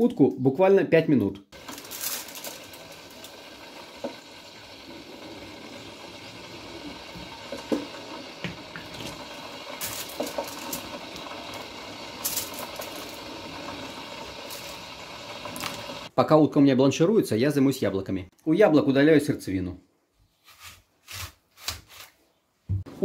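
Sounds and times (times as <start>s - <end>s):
broth simmering in a pot: 1.6s - 16.1s.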